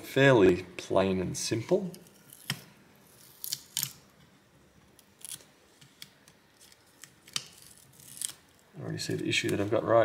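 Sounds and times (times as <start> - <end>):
tape crinkles and small ticks: 5.0 - 9.7.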